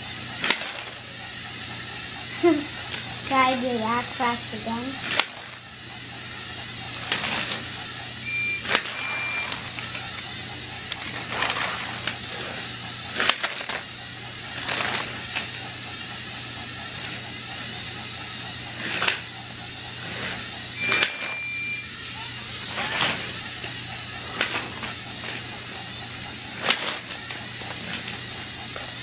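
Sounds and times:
toy trains clattering and knocking: 0:00.0 - 0:01.2, 0:02.3 - 0:05.7, 0:06.9 - 0:15.7, 0:18.7 - 0:19.4, 0:20.0 - 0:25.9, 0:26.5 - 0:29.0
toy train motor hum: 0:00.0 - 0:29.0
short high beeps: 0:08.2 - 0:09.6.

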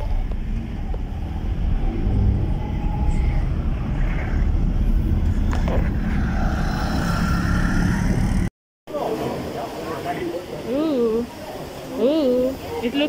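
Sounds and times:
car engine rumble: 0:00.0 - 0:08.5
road noise inside car: 0:00.0 - 0:08.5.

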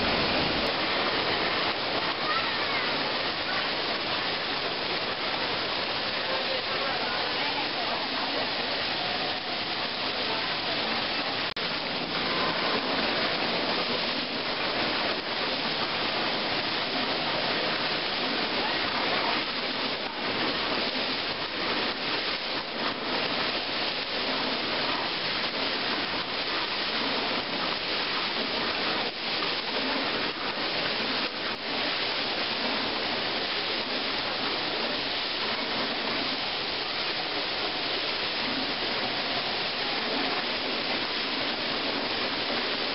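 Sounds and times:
fountain water splashing: 0:00.0 - 0:42.9.

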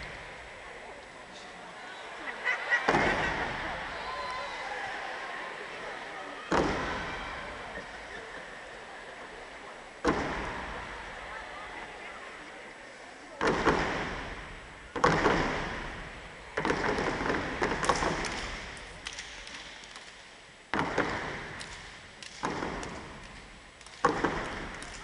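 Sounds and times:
crowd cheering in a hall: 0:00.0 - 0:25.0
stomps and hand claps: 0:16.6 - 0:25.0.

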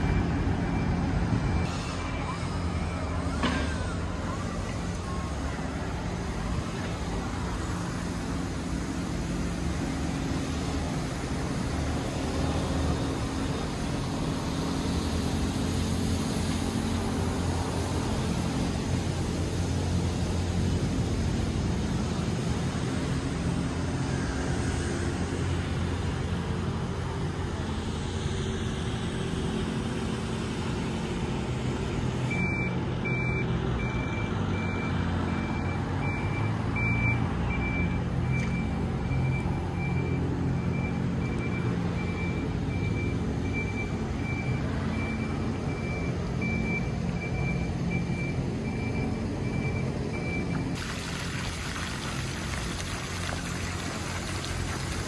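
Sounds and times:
reversing alarm beeping: 0:00.0 - 0:04.0, 0:32.3 - 0:50.8
street traffic rumble: 0:00.0 - 0:55.0.

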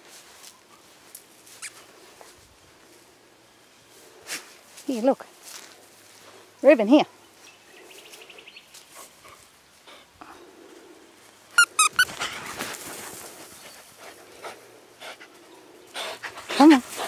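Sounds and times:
dog yelping: 0:11.6 - 0:12.4.

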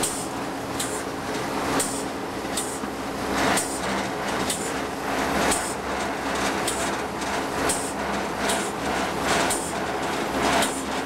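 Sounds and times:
locomotive engine drone: 0:00.0 - 0:11.0
wheels clicking over rail joints: 0:03.4 - 0:11.0.

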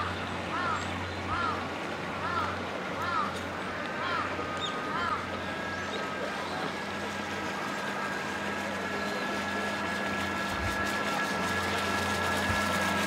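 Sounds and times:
boat wake rushing: 0:00.0 - 0:13.0
model boat motor whining: 0:00.0 - 0:13.0.

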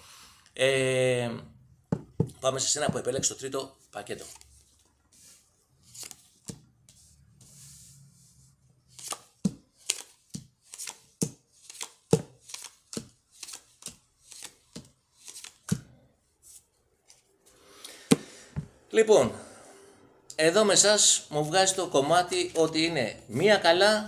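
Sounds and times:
cards rustling: 0:04.0 - 0:06.6, 0:08.9 - 0:15.9.

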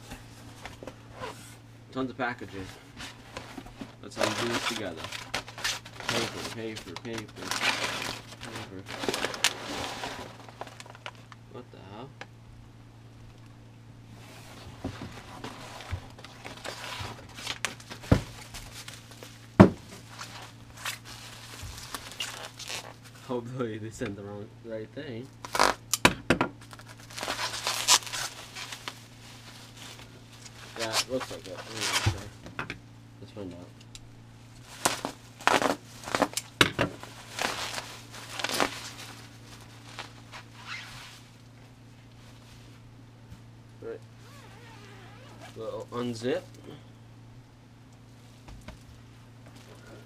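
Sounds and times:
faint low hum: 0:00.0 - 0:50.0
bubble wrap and paper rustling: 0:02.4 - 0:11.4, 0:14.2 - 0:23.3, 0:25.4 - 0:25.8, 0:26.6 - 0:32.4, 0:34.5 - 0:42.9, 0:44.2 - 0:46.3
box cutter slitting bubble wrap: 0:04.2 - 0:10.9, 0:25.4 - 0:25.8, 0:26.7 - 0:28.8, 0:34.8 - 0:39.1
dull thumps: 0:19.6 - 0:20.1.

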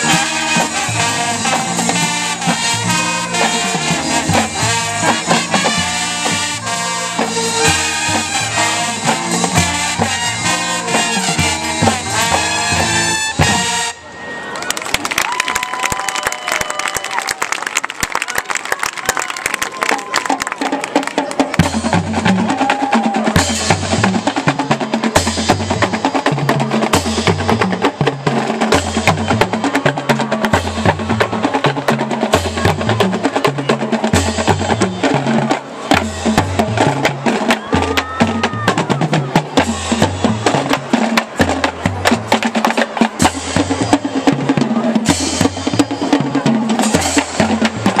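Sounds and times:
snare drums rattling: 0:19.6 - 0:48.0.

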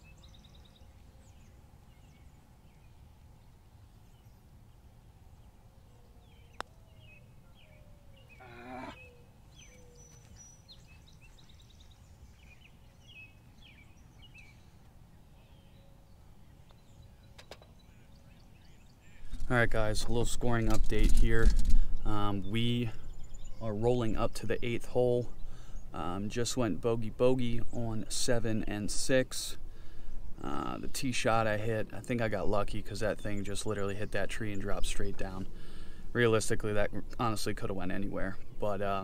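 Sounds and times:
bird chirps: 0:00.0 - 0:19.4, 0:21.9 - 0:26.1.

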